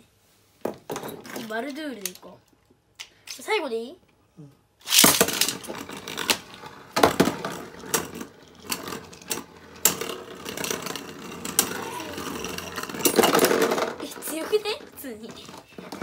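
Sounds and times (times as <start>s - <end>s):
spinning tops clacking together: 4.8s - 6.5s, 7.4s - 14.8s
spinning tops whirring: 4.8s - 15.3s.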